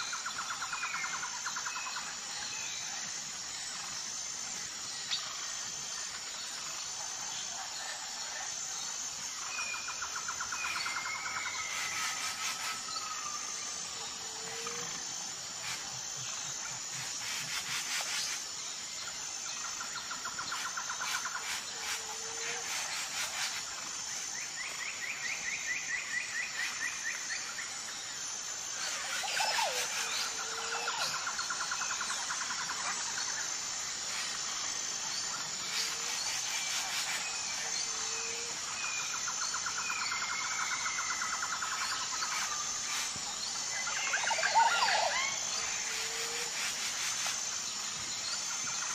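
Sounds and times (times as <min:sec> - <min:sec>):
high insect drone: 0:00.0 - 0:48.9
birds calling and chirping: 0:35.2 - 0:48.9.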